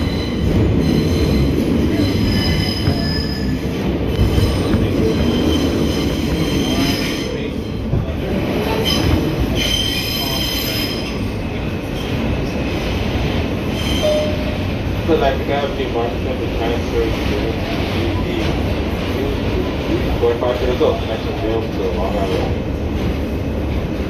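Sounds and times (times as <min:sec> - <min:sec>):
high-pitched wheel squeal: 0:00.0 - 0:03.7, 0:13.7 - 0:14.6
subway train rumble: 0:00.0 - 0:24.0.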